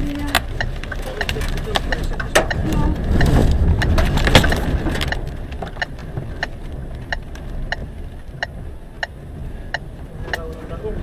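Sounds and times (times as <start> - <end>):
sharp ticks: 0.0 - 10.8
rain and debris on windshield: 0.0 - 11.0
storm wind buffeting vehicle: 0.0 - 11.0.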